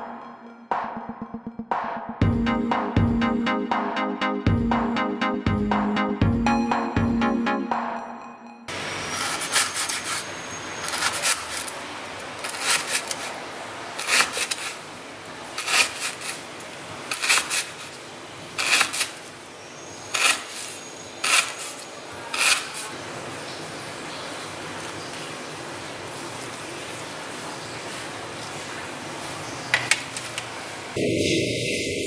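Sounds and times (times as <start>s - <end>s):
knife slicing lemongrass on board: 14.0s - 14.8s, 15.6s - 16.4s, 17.1s - 17.8s, 18.6s - 19.2s, 20.2s - 22.9s.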